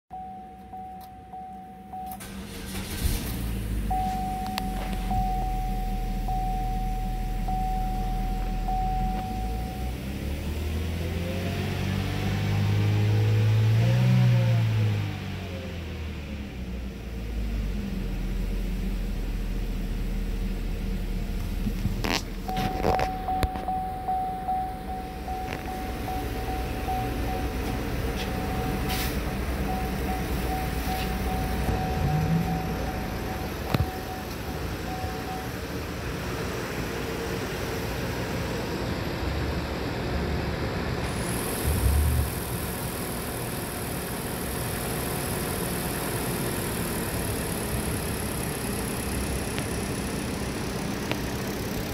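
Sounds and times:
electronic warning chime: 0.1 - 2.3, 3.9 - 10.1, 22.5 - 35.7
car engine starting and idling: 0.1 - 51.9
car engine revving: 2.2 - 5.2, 8.5 - 16.2, 24.4 - 35.5, 41.0 - 51.9.

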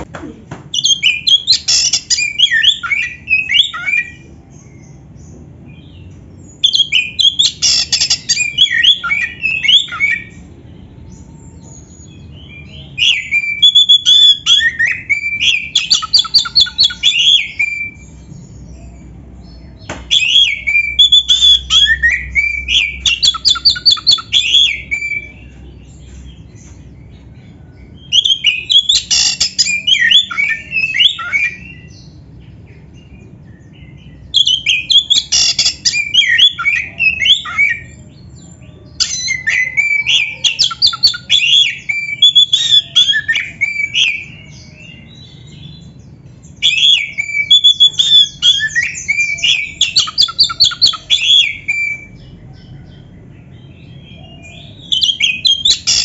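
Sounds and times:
bird singing rapid varied notes: 28.0 - 38.4, 53.4 - 56.0.

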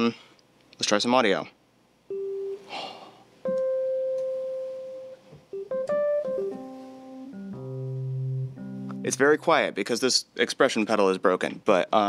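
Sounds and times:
quiet keyboard notes: 3.4 - 10.2.

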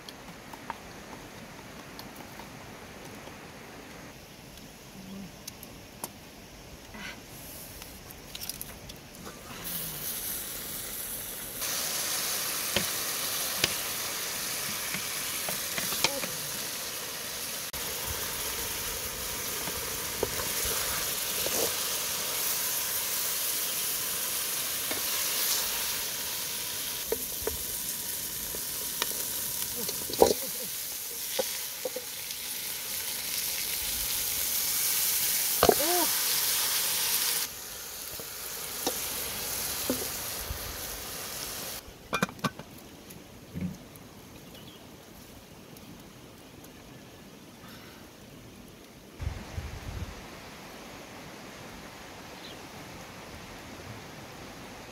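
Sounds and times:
food sizzling in a pot: 9.2 - 42.6.

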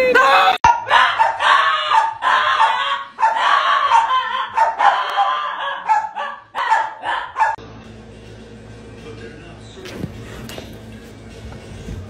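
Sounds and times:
small dog yapping: 0.7 - 7.6.

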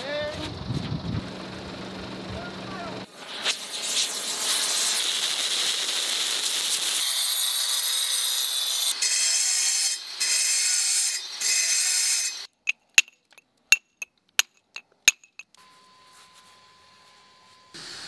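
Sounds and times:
steel tool tapping stone: 12.7 - 15.5.

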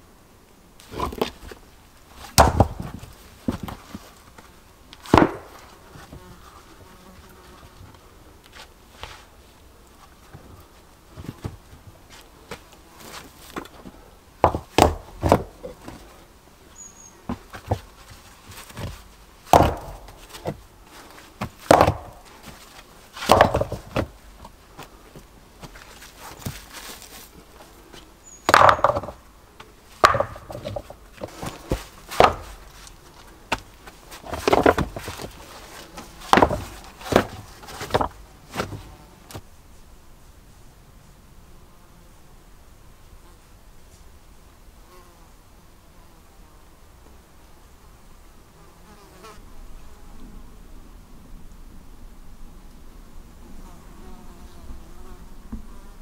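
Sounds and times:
wooden knocks and thuds: 2.2 - 4.0, 5.1 - 6.2, 14.4 - 16.0, 17.3 - 20.6, 21.4 - 22.6, 23.2 - 24.6, 28.5 - 29.2, 30.0 - 32.9, 33.5 - 35.4, 36.0 - 38.9.

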